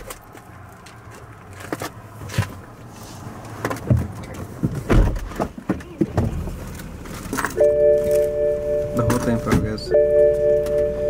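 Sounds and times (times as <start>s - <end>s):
knocks and thumps in car: 3.6s - 6.6s, 9.0s - 10.9s.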